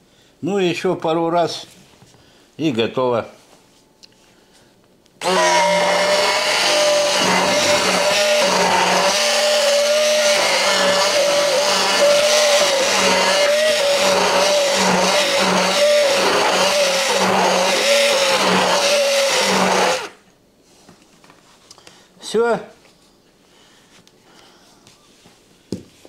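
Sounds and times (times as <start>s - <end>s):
electric blender motor whine: 5.2s - 20.2s.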